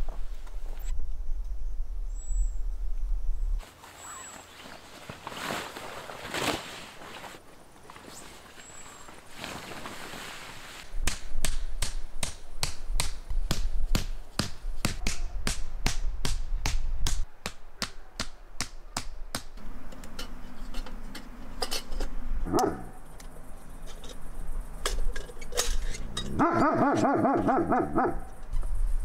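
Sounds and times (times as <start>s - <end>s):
hammering tent stake into ground: 11.0s - 19.6s.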